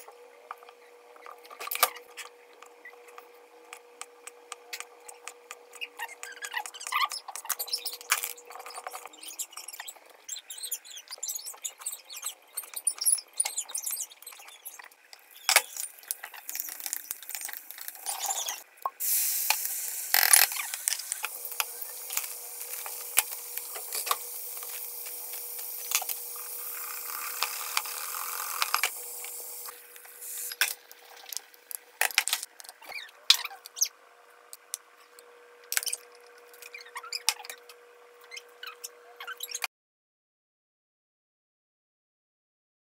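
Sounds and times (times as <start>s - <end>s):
steady hiss: 19.0s - 30.6s.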